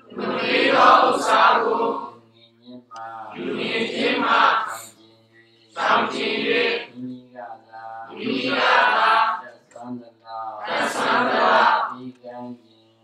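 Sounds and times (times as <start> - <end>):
group chanting in unison: 0.0 - 2.3, 2.9 - 5.0, 5.7 - 7.1, 7.8 - 9.5, 10.4 - 12.0.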